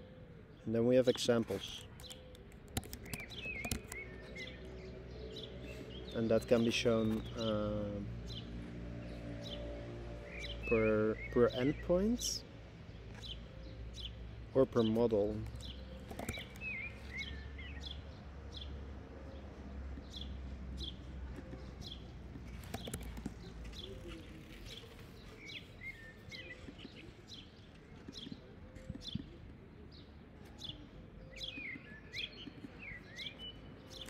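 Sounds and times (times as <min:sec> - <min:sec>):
small birds chirping: 0:00.0 - 0:34.0
scattered clicks: 0:01.8 - 0:04.4, 0:15.4 - 0:16.7, 0:22.5 - 0:23.5.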